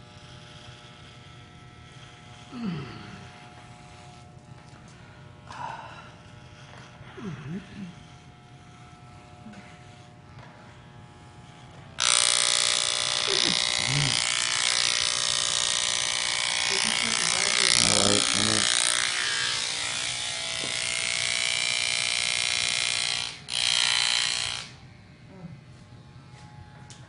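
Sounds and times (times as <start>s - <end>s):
electric hair clippers buzzing: 0.0s - 27.0s.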